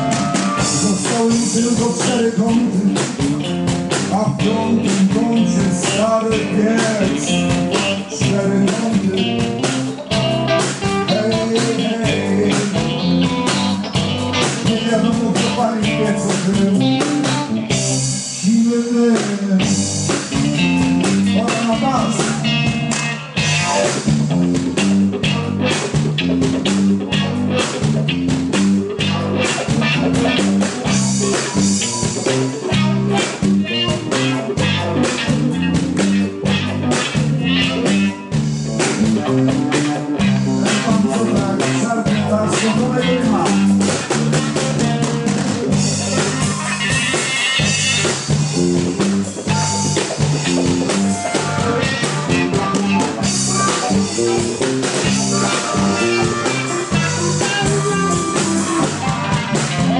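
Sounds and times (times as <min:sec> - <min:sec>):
bass guitar: 0:00.0 - 0:59.9
drum kit steady beat: 0:00.0 - 0:59.9
electric guitars: 0:00.0 - 0:59.9.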